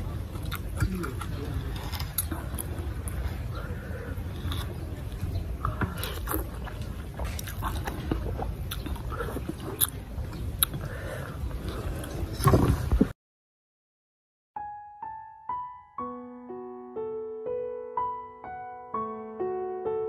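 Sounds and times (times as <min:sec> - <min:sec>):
man slurping and chewing noodles: 0:00.0 - 0:12.9.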